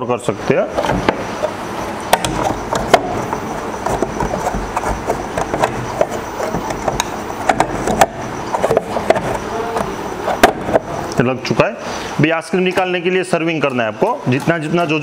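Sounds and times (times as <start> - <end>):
steady background hiss: 0.0 - 15.0
plastic clicks and knocks: 0.8 - 10.9.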